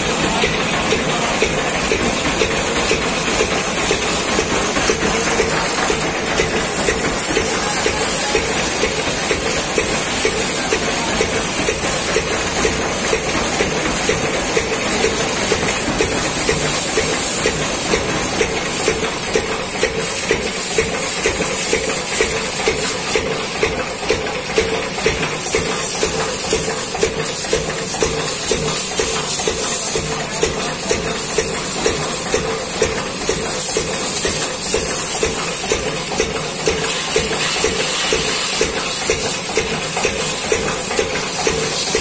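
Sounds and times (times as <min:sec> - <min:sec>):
pressure washer jet hissing: 0:00.0 - 0:42.0
washer pump humming: 0:00.0 - 0:42.0.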